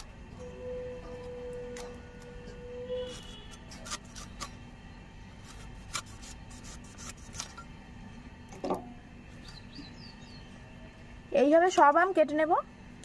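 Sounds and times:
knife slicing raw mango: 0:05.3 - 0:07.6.

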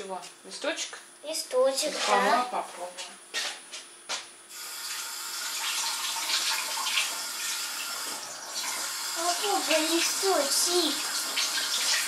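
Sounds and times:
tap water running into sink: 0:04.7 - 0:12.0.

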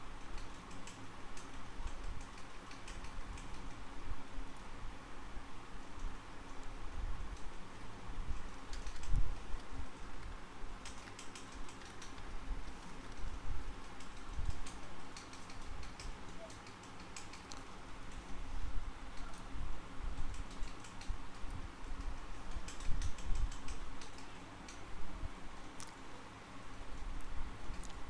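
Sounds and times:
keyboard key clicks: 0:10.8 - 0:12.3, 0:13.9 - 0:17.7, 0:22.0 - 0:24.8.

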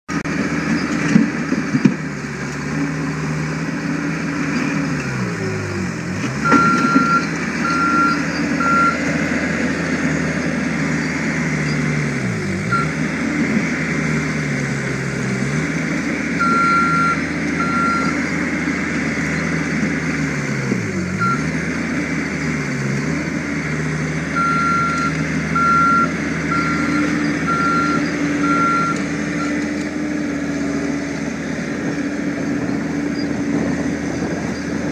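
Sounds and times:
diesel engine labouring: 0:00.1 - 0:34.9
reversing alarm beeps: 0:06.4 - 0:09.0, 0:16.4 - 0:18.1, 0:24.4 - 0:29.6.

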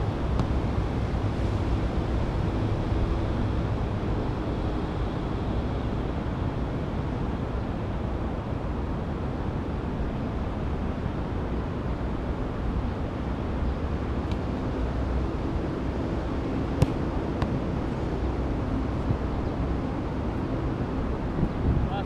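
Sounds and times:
wind buffeting microphone: 0:15.9 - 0:22.0.

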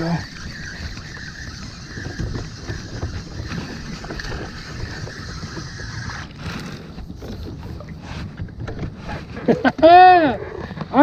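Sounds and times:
fishing reel whirring: 0:00.0 - 0:07.9
wind buffeting microphone: 0:00.0 - 0:11.0.

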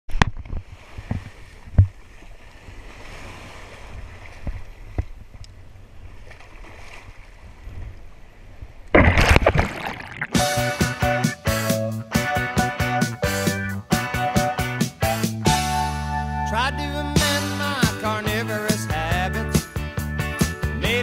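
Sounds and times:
water sloshing: 0:08.9 - 0:10.4
splashing water rush: 0:09.0 - 0:10.7.

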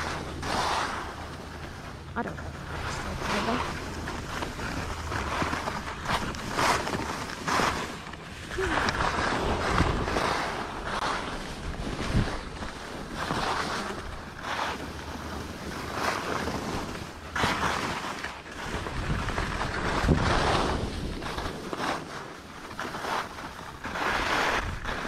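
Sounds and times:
skis scraping over snow: 0:00.0 - 0:25.0
wind on microphone: 0:02.6 - 0:14.8, 0:18.6 - 0:22.0.

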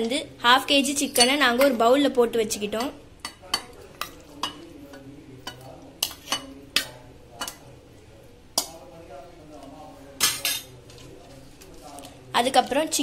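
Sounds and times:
spoon clinking on steel bowl: 0:02.7 - 0:07.7, 0:09.6 - 0:10.7.

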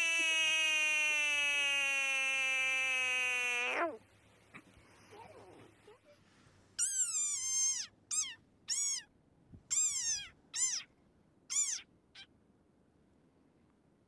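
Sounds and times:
frog giving squeaky calls: 0:00.0 - 0:04.0, 0:06.8 - 0:09.1, 0:09.7 - 0:10.9, 0:11.5 - 0:12.3.

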